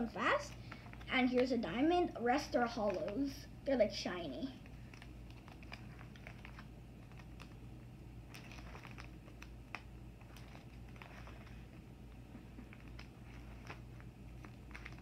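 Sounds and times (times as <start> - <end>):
plastic pages crinkling: 4.6 - 15.0.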